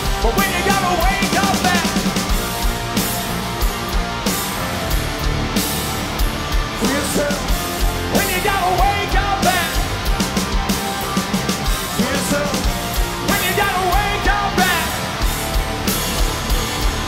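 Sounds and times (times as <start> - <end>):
hard rock band playing: 0.0 - 17.0.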